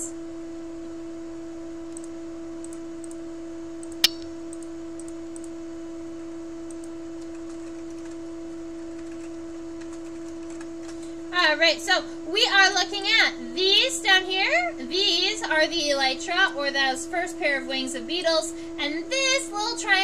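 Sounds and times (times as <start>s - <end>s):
sharp click: 3.8s - 5.5s.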